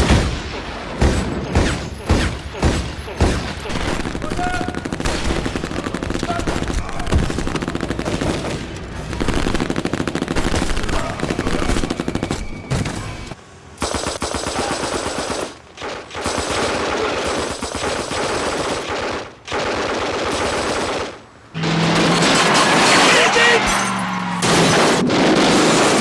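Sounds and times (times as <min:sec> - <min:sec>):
submachine gun full-auto bursts: 0:13.8 - 0:21.2.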